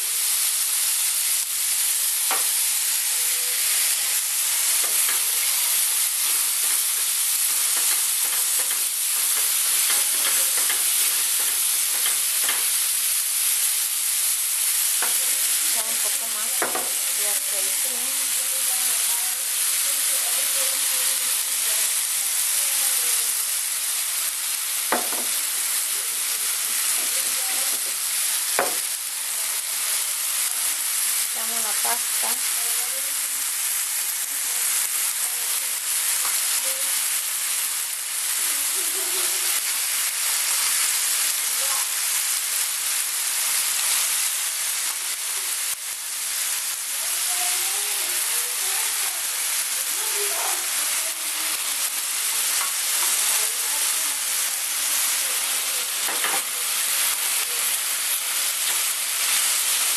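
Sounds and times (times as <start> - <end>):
vegetables sizzling in oil: 0.0 - 59.9
utensil clicking against pan: 6.6 - 12.8.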